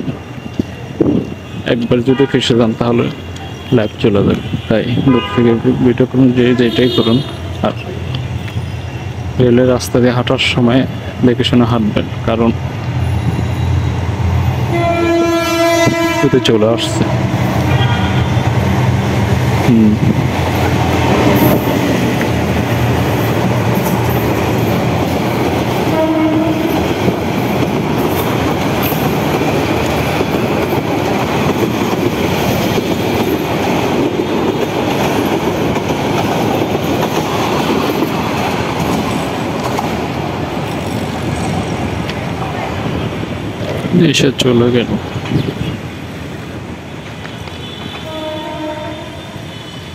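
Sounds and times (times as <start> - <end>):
passenger train passing: 0.0 - 49.9
wheels clattering on rails: 17.0 - 48.2.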